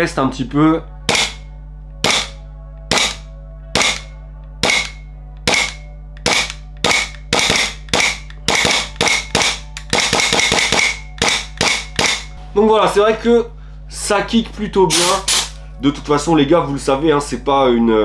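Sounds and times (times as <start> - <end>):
airsoft pistol shots: 1.1 - 1.4, 2.0 - 3.2, 3.8 - 12.3, 14.9 - 15.6.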